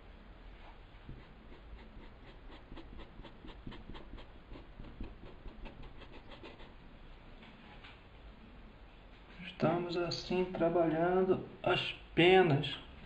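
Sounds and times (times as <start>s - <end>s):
paintbrush dabbing on fabric: 1.0s - 6.7s.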